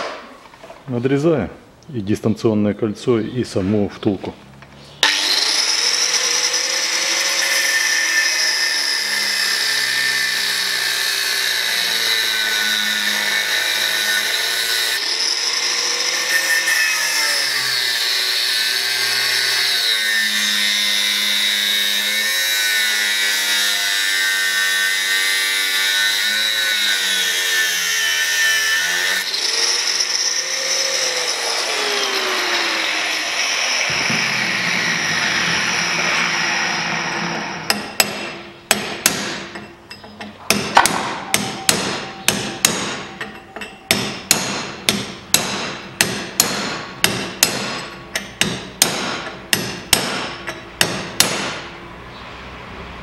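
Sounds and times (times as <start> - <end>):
angle grinder cutting steel: 5.0 - 38.5.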